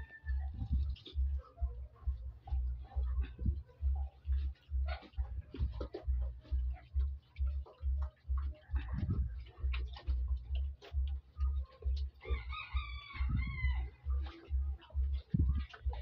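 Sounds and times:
rooster crowing: 0.0s - 0.9s, 12.2s - 14.2s.

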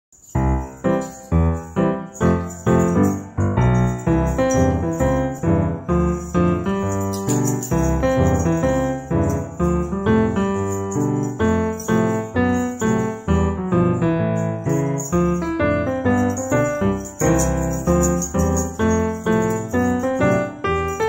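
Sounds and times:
piano melody: 0.2s - 21.0s.

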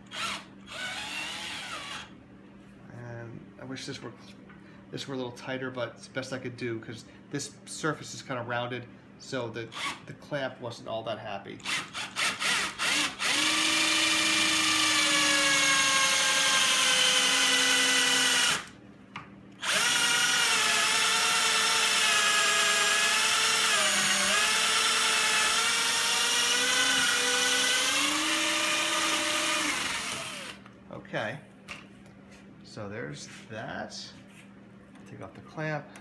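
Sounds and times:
power drill whining: 0.0s - 2.1s, 11.6s - 18.7s, 19.6s - 30.6s.

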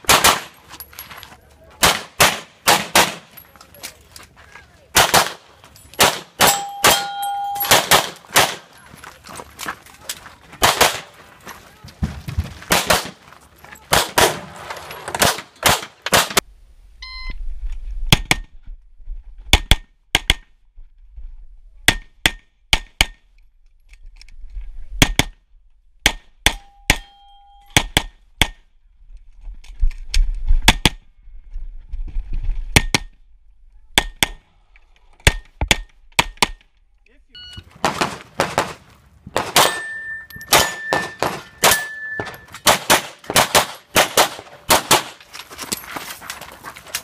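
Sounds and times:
pistol shots: 0.0s - 0.6s, 1.8s - 3.3s, 5.0s - 8.7s, 10.6s - 11.2s, 12.7s - 13.2s, 13.9s - 14.5s, 15.2s - 16.4s, 37.8s - 38.8s, 39.4s - 39.9s, 40.5s - 45.2s
metallic ring of steel targets: 5.8s - 7.9s, 26.5s - 27.8s, 39.5s - 42.7s.

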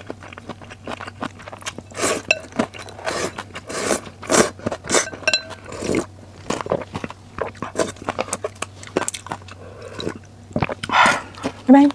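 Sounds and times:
wet chewing clicks: 0.0s - 11.9s
person slurping noodles: 2.0s - 5.1s, 5.7s - 6.1s.

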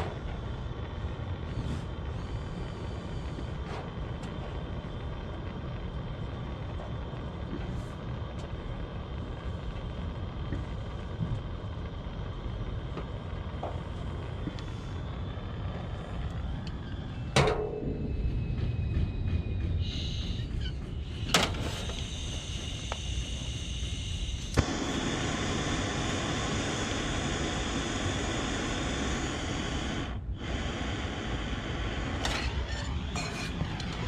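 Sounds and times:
low rumble: 0.0s - 34.0s
torch gas hissing: 0.0s - 34.0s
torch igniter clicks: 21.2s - 34.0s.

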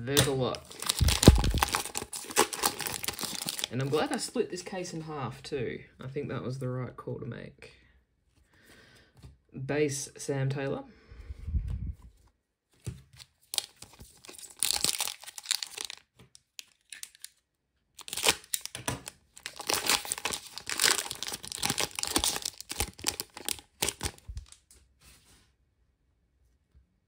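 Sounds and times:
foil wrapper tearing and crinkling: 0.2s - 4.2s, 13.4s - 17.4s, 18.0s - 24.6s.

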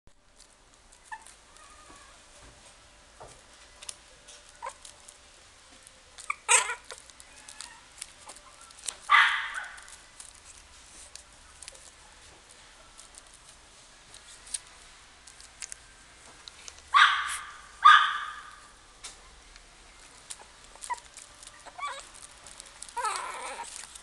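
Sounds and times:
scratching and rustling on bedding: 0.3s - 15.8s, 19.9s - 24.0s
puppy yipping and squeaking: 1.0s - 1.8s, 6.2s - 10.0s, 16.9s - 18.6s, 20.3s - 24.0s.

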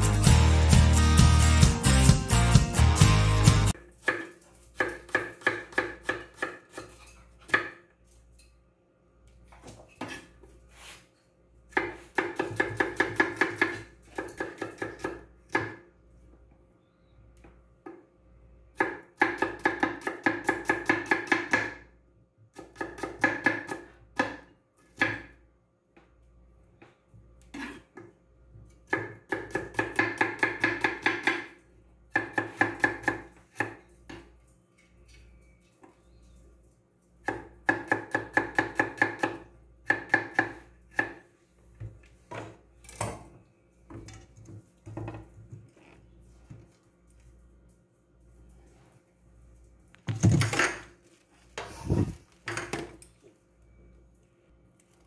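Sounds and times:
knife chopping on wooden board: 4.0s - 7.8s, 11.7s - 15.8s, 28.9s - 31.5s, 32.1s - 34.3s.

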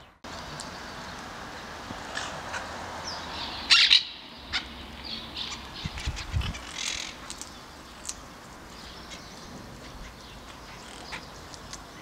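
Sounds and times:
parakeets calling harshly: 3.4s - 7.2s.

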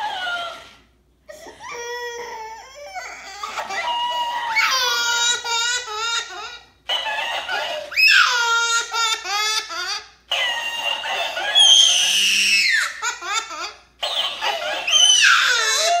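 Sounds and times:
toddler crying and laughing: 1.3s - 6.7s, 7.6s - 10.2s, 10.9s - 13.8s, 14.4s - 16.0s.

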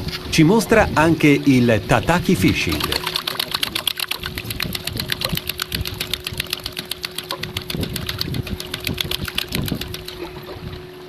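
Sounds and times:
fishing rod rattling: 2.2s - 10.3s.

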